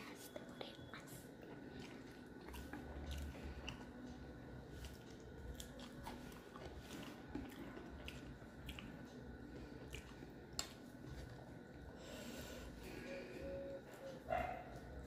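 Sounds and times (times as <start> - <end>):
chewing food: 0.1 - 12.0.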